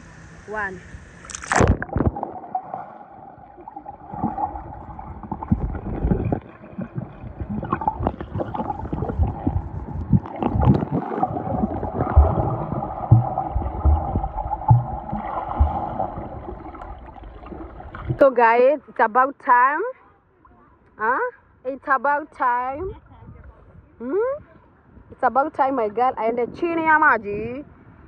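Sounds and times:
dull hum: 0:00.0 - 0:18.4
underwater gurgling and bubbles: 0:01.1 - 0:18.2
dull low thumps: 0:04.2 - 0:18.3.

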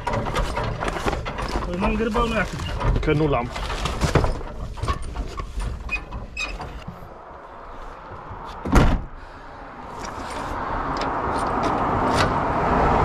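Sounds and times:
steady vehicle noise: 0:00.0 - 0:13.0
car door slamming: 0:08.6 - 0:09.2.

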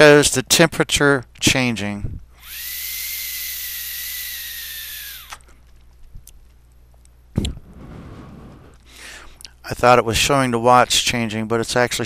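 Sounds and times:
vape airflow hiss with whistle: 0:02.4 - 0:05.4.

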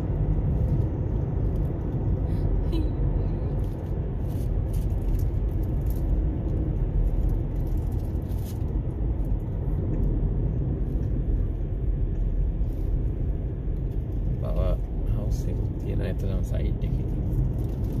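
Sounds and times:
car road and engine noise: 0:00.0 - 0:18.0.

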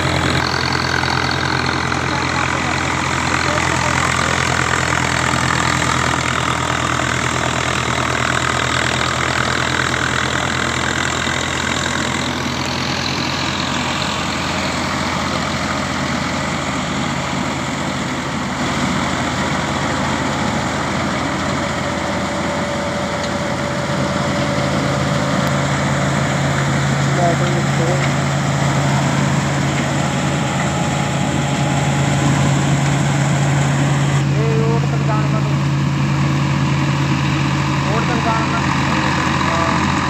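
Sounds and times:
straw reaper mechanical din: 0:00.0 - 0:15.9
tractor engine running: 0:00.0 - 0:40.0.

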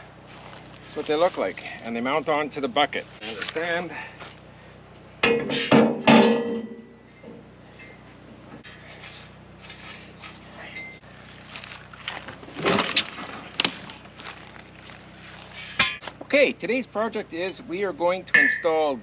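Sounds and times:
steel fork clanking and ringing: 0:05.2 - 0:08.1, 0:10.7 - 0:11.0, 0:18.3 - 0:18.9.

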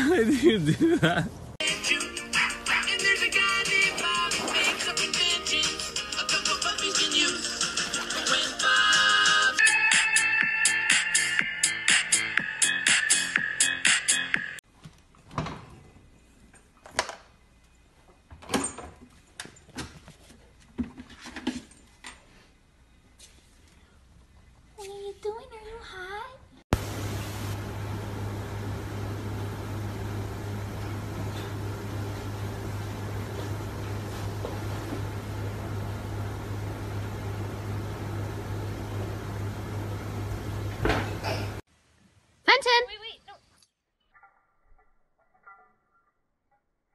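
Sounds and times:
steady low hum with hiss: 0:26.4 - 0:43.6.

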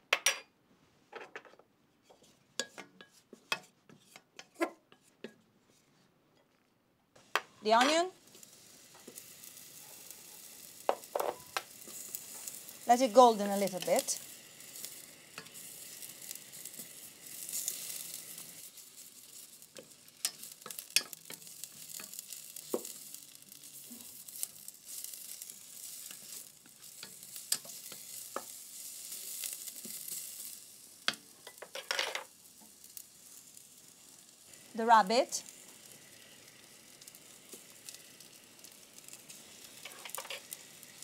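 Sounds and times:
wooden spatula scraping pan: 0:02.0 - 0:06.1, 0:39.8 - 0:40.5
onions sizzling in oil: 0:07.2 - 0:41.0.

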